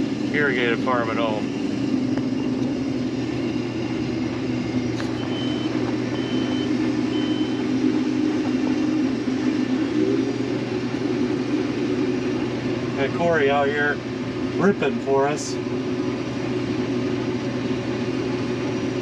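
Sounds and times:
combine harvester droning: 0.0 - 19.0
short high beeps: 5.2 - 7.7.

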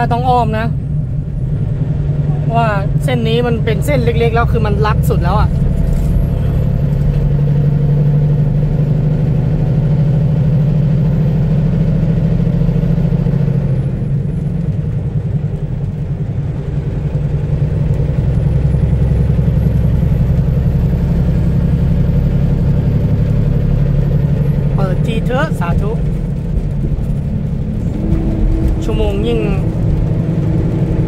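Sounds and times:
truck diesel engine running: 0.0 - 31.0.

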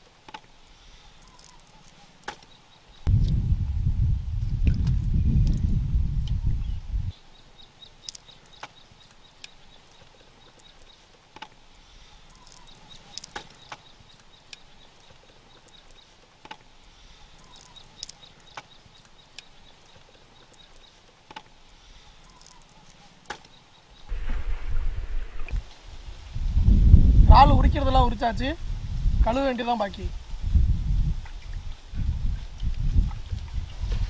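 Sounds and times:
low rumble: 3.1 - 7.1, 24.1 - 27.3
prawn shells snapping: 8.0 - 10.0, 12.2 - 14.6, 17.4 - 19.5
faint high pulsing chirp: 12.2 - 16.2, 17.2 - 21.0, 22.0 - 24.1.

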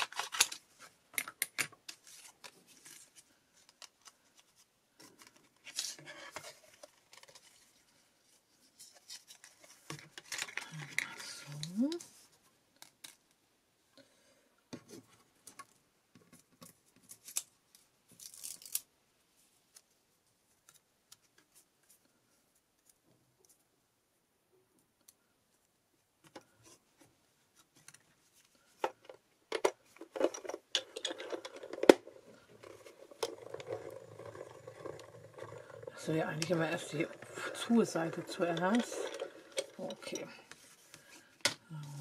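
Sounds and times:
paper and card rustling: 0.0 - 13.2, 27.5 - 42.0.

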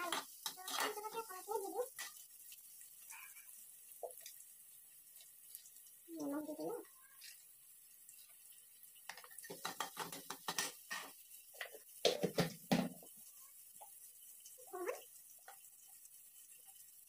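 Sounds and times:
spoon and plastic containers clattering: 0.0 - 2.2, 9.0 - 13.1.

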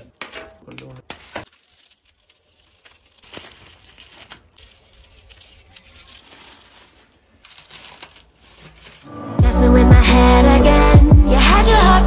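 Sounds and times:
plastic wrap crinkling and tearing: 0.2 - 9.3.

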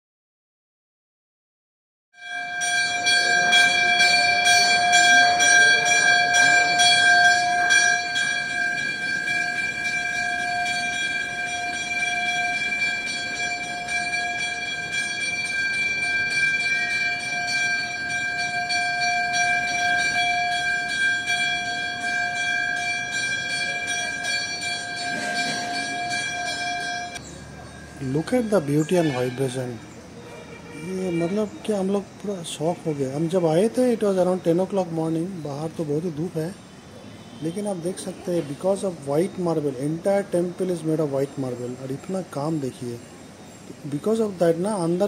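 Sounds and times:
temple bell ringing: 2.2 - 36.4.

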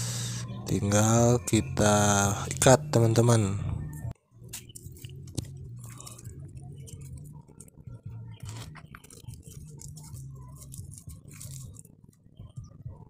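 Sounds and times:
steady low hum: 0.0 - 13.0
plastic strip crinkling and rustling: 4.5 - 12.2.

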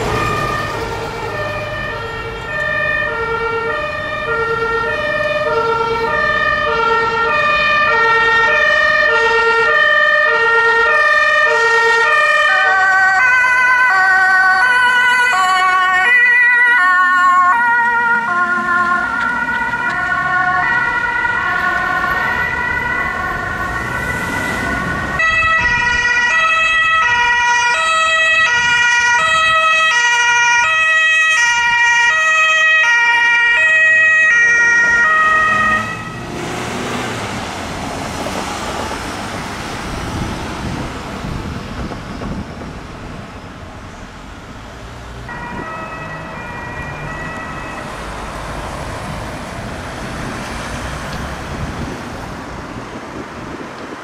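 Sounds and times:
street traffic noise: 0.0 - 54.0
two-tone sirens: 0.0 - 54.0.

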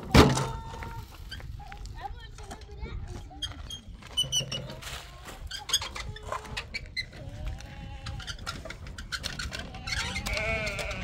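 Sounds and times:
goat or sheep bleating: 7.1 - 8.4, 9.6 - 11.0.

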